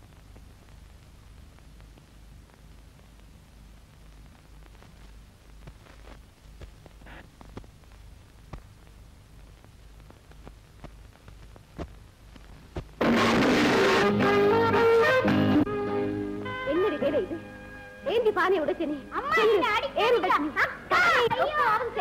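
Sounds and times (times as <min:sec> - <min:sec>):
faint clicks: 0:04.0 - 0:13.0
loud crash of hissing noise: 0:13.0 - 0:14.3.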